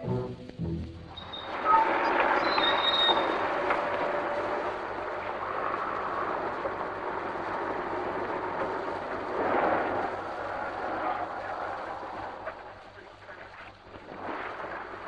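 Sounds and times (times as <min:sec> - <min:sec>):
street and traffic noise: 0:01.1 - 0:13.0.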